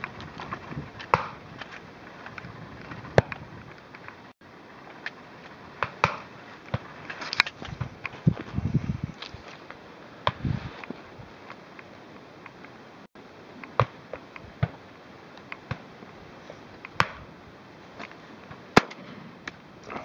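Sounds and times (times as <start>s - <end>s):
rustle of crop stalks: 0.0s - 12.3s.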